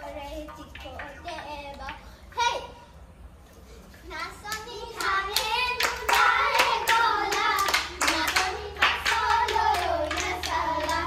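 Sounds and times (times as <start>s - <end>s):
hand clapping: 0.4s - 2.0s, 4.4s - 11.0s.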